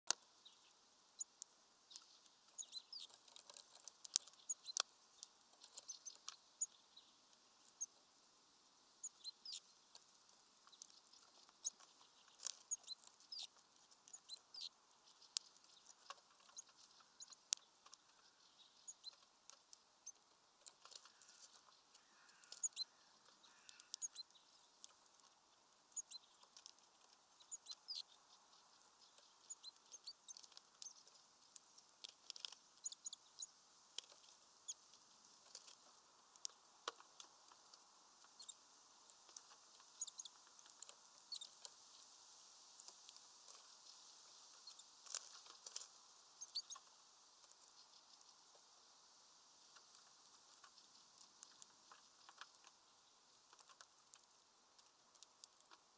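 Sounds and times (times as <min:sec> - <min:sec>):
birds pecking at feeder: 0:00.1 - 0:08.1, 0:09.0 - 0:55.9
high bird chirps: 0:01.9 - 0:03.2, 0:09.0 - 0:09.7, 0:21.0 - 0:25.0, 0:27.4 - 0:31.1.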